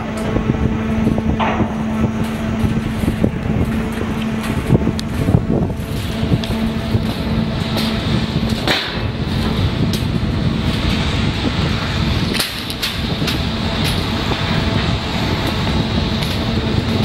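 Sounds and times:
constant low hum: 0:00.0 - 0:17.0
loud low rumble: 0:00.0 - 0:17.0.

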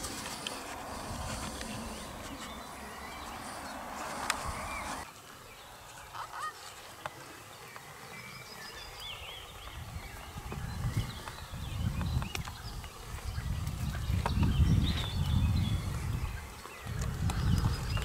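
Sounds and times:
low rumble: 0:00.0 - 0:05.0
faint bird calls: 0:00.0 - 0:05.1, 0:05.8 - 0:11.5.

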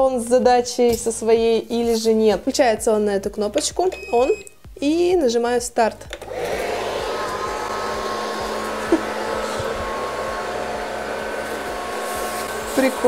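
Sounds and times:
robot vacuum cleaner whirring: 0:06.1 - 0:13.0.

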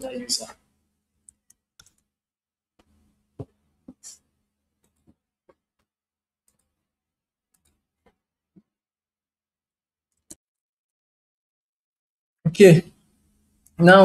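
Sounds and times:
mouse and keyboard clicks: 0:01.3 - 0:02.1, 0:07.5 - 0:07.8.

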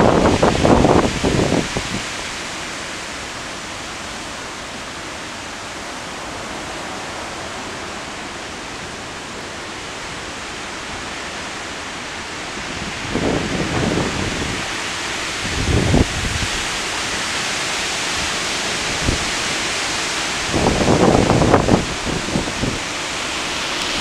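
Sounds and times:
wind gust on microphone: 0:00.0 - 0:02.5, 0:12.4 - 0:24.0
heavy rain falling: 0:00.0 - 0:24.0.

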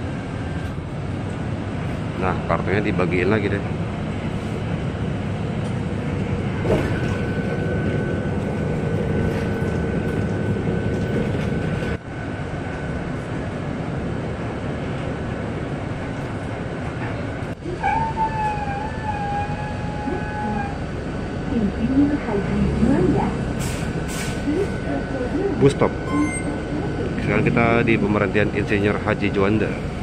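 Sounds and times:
bus engine and road noise: 0:00.0 - 0:30.0
wavering tone with overtones: 0:24.5 - 0:27.6.

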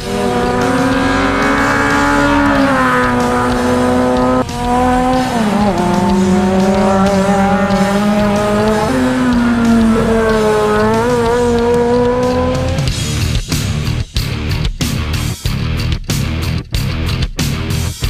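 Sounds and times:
race car engines passing at high revs: 0:00.0 - 0:13.0.

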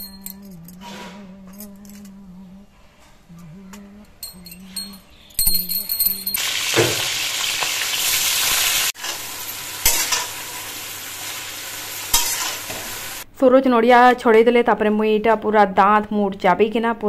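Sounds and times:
vegetables sizzling in hot oil: 0:06.4 - 0:13.2
metal spatula scraping pan: 0:12.1 - 0:12.8.

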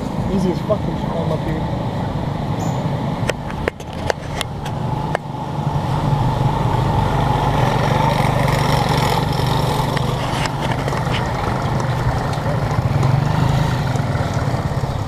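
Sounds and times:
small motorcycle engine running: 0:04.0 - 0:15.0.

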